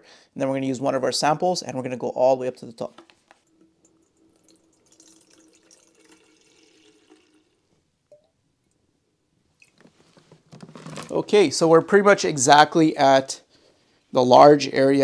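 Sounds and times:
water trickling into a tank: 3.2 - 8.9, 9.6 - 9.9.

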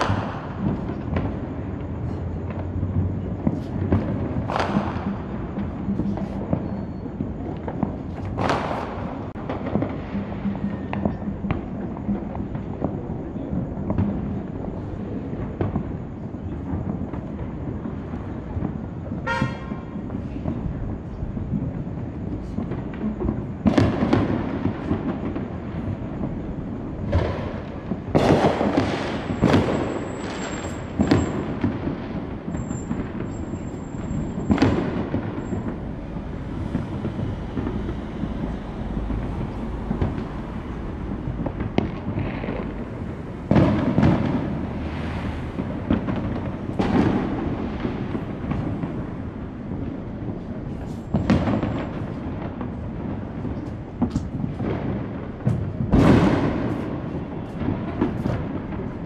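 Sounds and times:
distant explosions rumbling: 0.0 - 59.0
fireworks banging and crackling: 0.0 - 59.0
high firework whistles: 6.0 - 11.3, 27.0 - 48.8.

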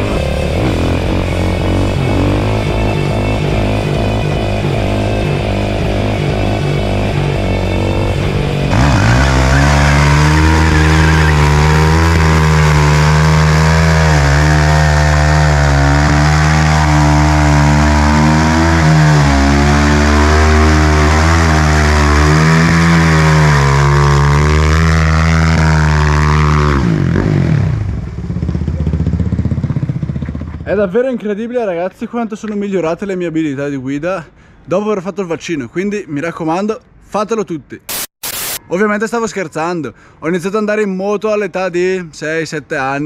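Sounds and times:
motorcycle engine revving: 0.0 - 30.7.

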